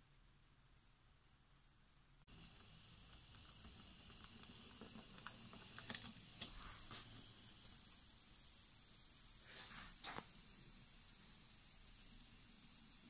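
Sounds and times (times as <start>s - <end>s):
wheels clicking over rail joints: 2.3s - 7.9s
model train whirring: 2.3s - 13.0s.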